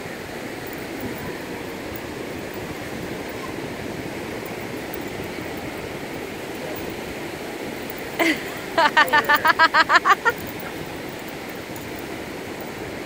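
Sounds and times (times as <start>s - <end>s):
wind rumbling on microphone: 0.0s - 8.8s
ocean surf rushing: 0.0s - 13.0s.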